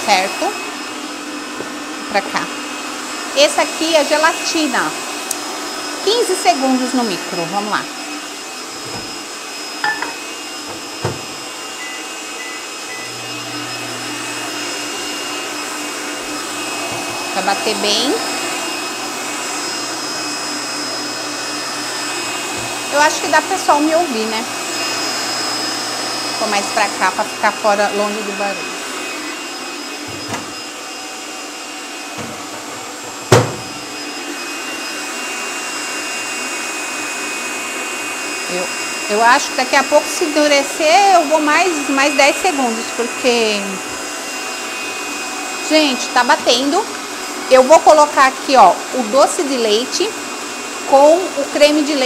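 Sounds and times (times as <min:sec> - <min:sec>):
stand mixer whirring: 0:00.0 - 0:52.0
knock: 0:09.8 - 0:11.4, 0:33.3 - 0:33.7
loud knock: 0:33.3 - 0:33.7.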